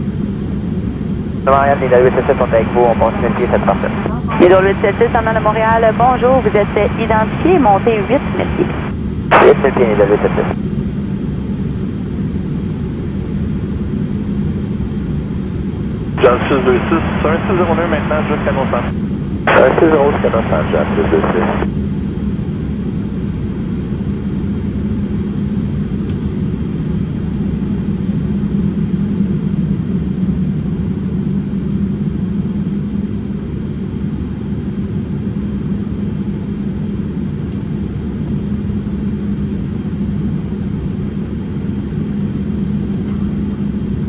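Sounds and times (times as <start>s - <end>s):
airplane cabin rumble: 0.0s - 44.0s
jet engines at climb thrust: 0.0s - 44.0s
airflow over fuselage: 0.1s - 11.4s, 14.6s - 21.9s.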